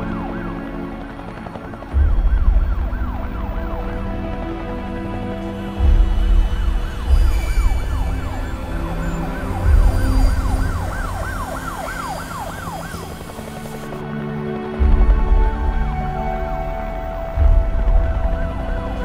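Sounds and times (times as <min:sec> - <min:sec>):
dark low music with bass hits: 0:00.0 - 0:19.0
siren yelping: 0:07.0 - 0:14.0.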